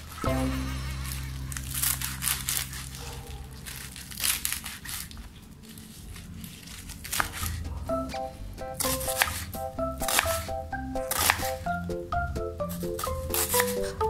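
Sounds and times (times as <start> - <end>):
knife slicing vegetables on board: 5.8 - 11.8, 12.6 - 14.0.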